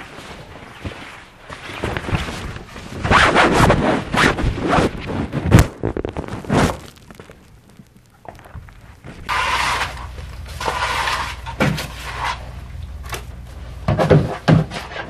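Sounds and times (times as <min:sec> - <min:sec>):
fabric swishing: 0:00.0 - 0:06.9.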